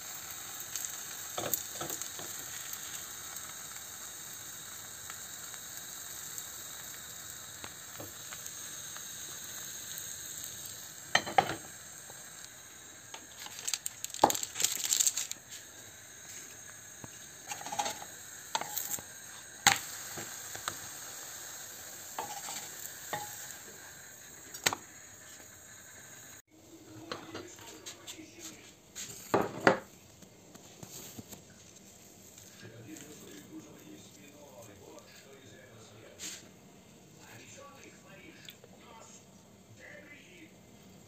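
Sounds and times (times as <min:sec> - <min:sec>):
batter sizzling in frying pan: 0:00.0 - 0:39.0
plastic film crinkling: 0:13.2 - 0:15.6.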